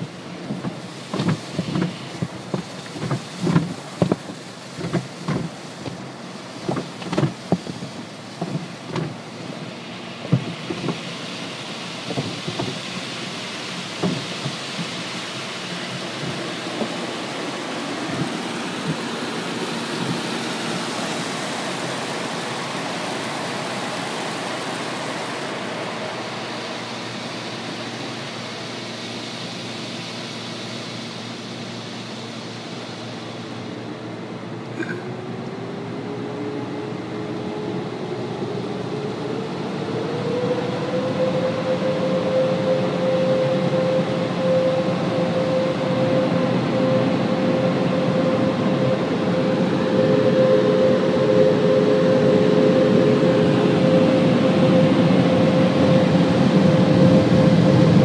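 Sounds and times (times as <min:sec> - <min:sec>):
water spray rushing over car: 0:00.0 - 0:33.7
wash strips slapping car body: 0:00.4 - 0:09.5, 0:10.2 - 0:11.1, 0:12.0 - 0:13.0, 0:13.6 - 0:17.1.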